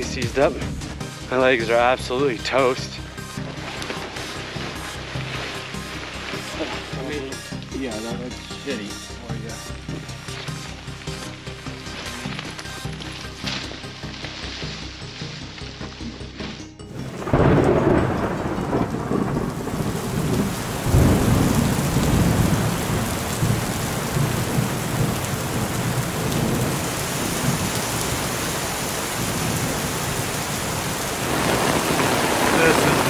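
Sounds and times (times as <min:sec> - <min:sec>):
steady rain: 0:00.0 - 0:33.0
thunder rumbling: 0:16.9 - 0:33.0.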